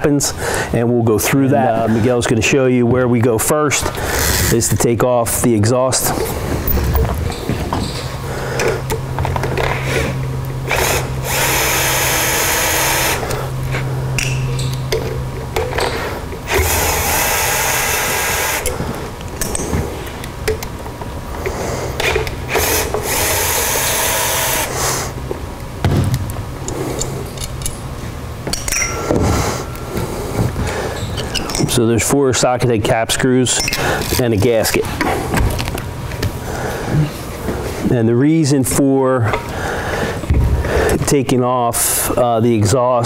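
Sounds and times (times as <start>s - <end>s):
cordless drill-driver running: 10.7s - 13.4s, 16.5s - 18.8s, 22.5s - 25.1s.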